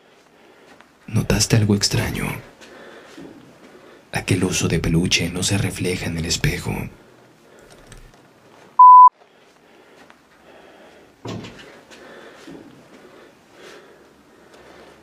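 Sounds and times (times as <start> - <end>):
electronic beep: 8.8 - 9.1.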